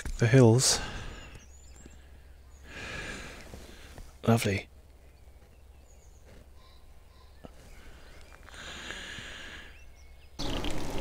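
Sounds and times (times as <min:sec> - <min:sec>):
faint countryside ambience: 0:00.0 - 0:11.0.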